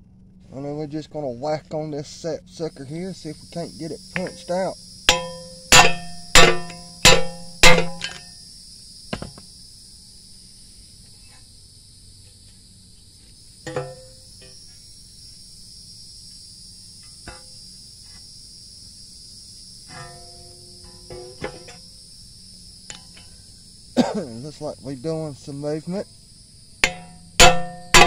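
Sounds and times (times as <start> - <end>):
hammer striking metal: 5.1 - 8.3, 13.7 - 14.2, 26.8 - 28.0.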